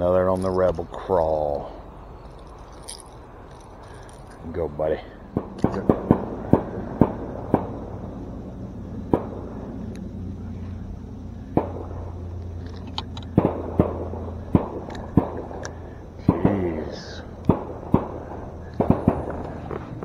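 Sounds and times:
gunshots popping: 0:05.3 - 0:08.1, 0:09.1 - 0:09.5, 0:11.5 - 0:12.1, 0:13.3 - 0:19.8.

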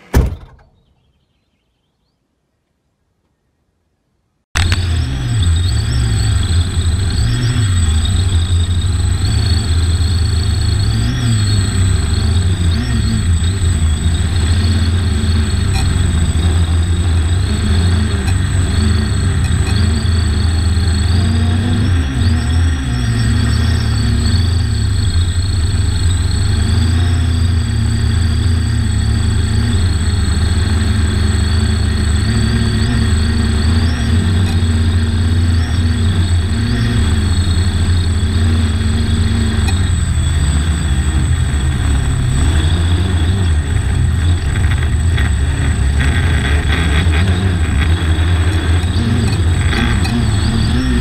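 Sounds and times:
drone propellers humming: 0:04.6 - 0:51.0.

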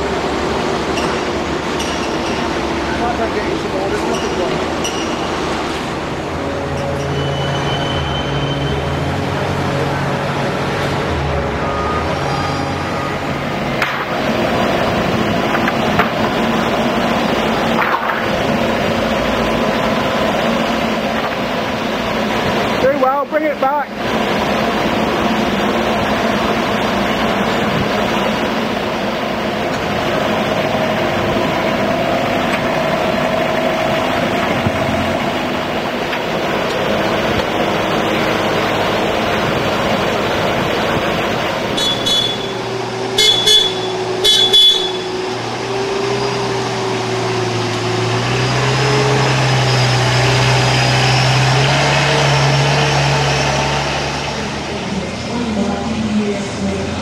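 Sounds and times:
forklift engine and hydraulic drone: 0:00.0 - 0:57.0
short high beeps: 0:07.1 - 0:08.9, 0:41.8 - 0:45.2.

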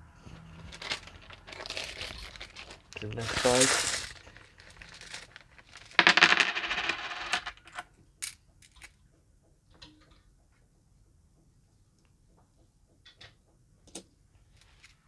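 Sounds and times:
coins jingling in hand: 0:00.7 - 0:07.5
single coins clinking: 0:00.7 - 0:08.9.

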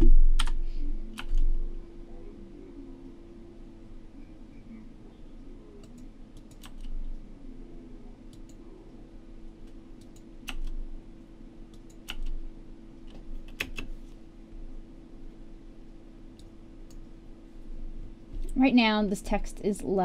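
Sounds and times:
steady low hum: 0:00.0 - 0:20.0
keyboard keystrokes: 0:11.7 - 0:12.4, 0:13.1 - 0:13.9.

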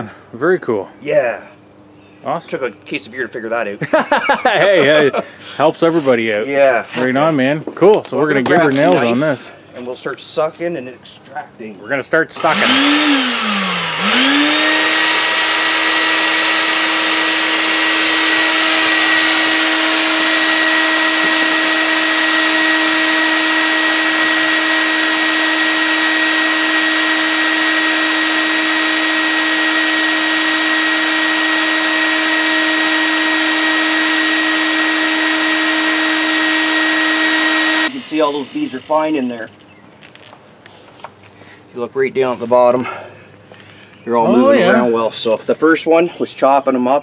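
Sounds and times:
vacuum motor whine: 0:12.4 - 0:39.3.

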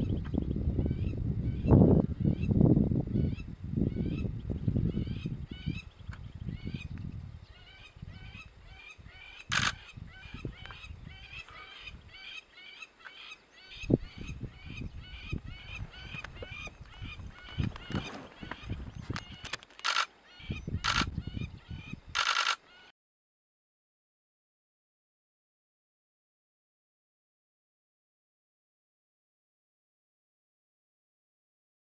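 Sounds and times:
birds calling in short calls: 0:03.2 - 0:22.9.

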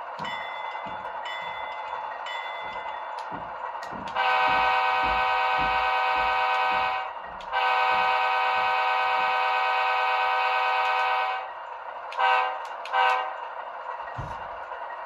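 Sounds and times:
locomotive air horn blasts: 0:04.2 - 0:11.5, 0:12.2 - 0:13.4.

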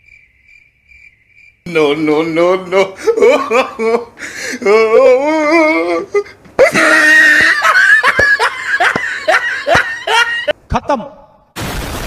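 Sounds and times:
person laughing: 0:02.0 - 0:11.1
person shrieking: 0:04.6 - 0:07.7.

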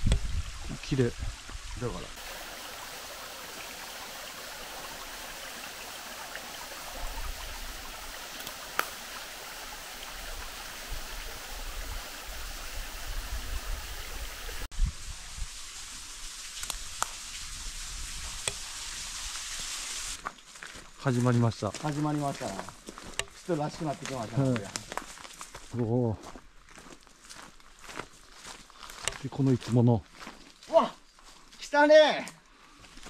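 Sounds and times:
stream running over rocks: 0:00.0 - 0:20.3, 0:21.2 - 0:25.0.

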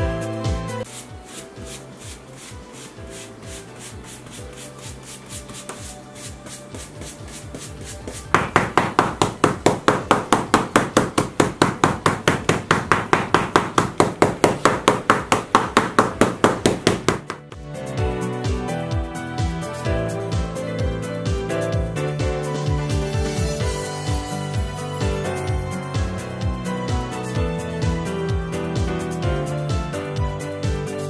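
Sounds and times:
quiet background music: 0:00.0 - 0:31.0
soft brushing over paper: 0:00.8 - 0:08.4
brush striking paper: 0:00.8 - 0:17.6.

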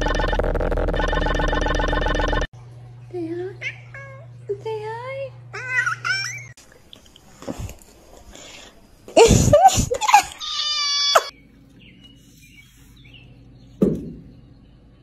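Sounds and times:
cat yowling: 0:10.3 - 0:11.3.

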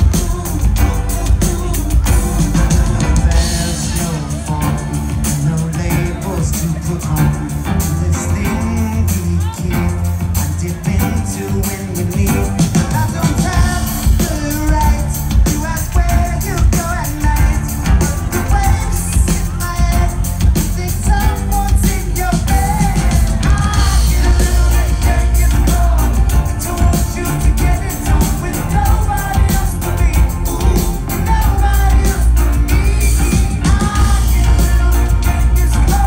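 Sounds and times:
male singing: 0:00.0 - 0:36.0
rock band playing: 0:00.0 - 0:36.0.

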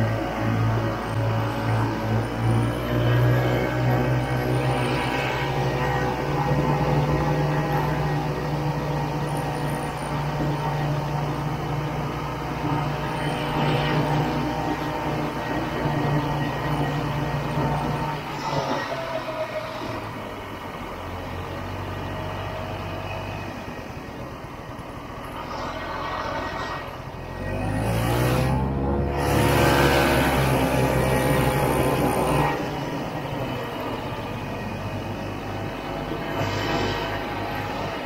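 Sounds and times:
snowmobile two-stroke engine: 0:27.6 - 0:34.0.

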